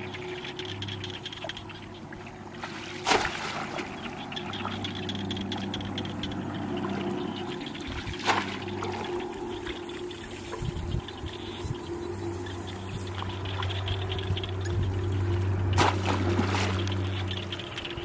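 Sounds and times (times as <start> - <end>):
faint steady hum: 0.0 - 18.0
water sloshing and trickling: 0.0 - 18.0
basket splashing into water: 2.6 - 3.9, 15.8 - 16.8.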